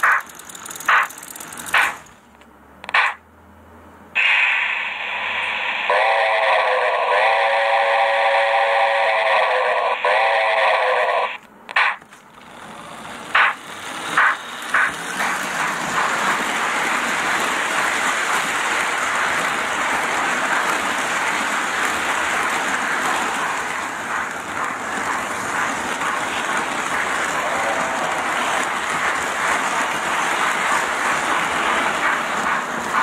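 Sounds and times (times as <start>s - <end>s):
model train wheels rumbling on rail: 0.0s - 3.1s, 4.2s - 33.0s
short sharp sounds: 4.2s - 5.9s.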